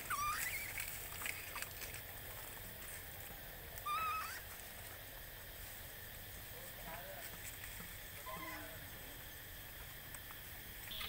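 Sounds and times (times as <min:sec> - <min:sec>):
baby monkey squealing cries: 0:00.0 - 0:00.8, 0:03.8 - 0:04.5
rustling of dry leaves: 0:00.0 - 0:11.0.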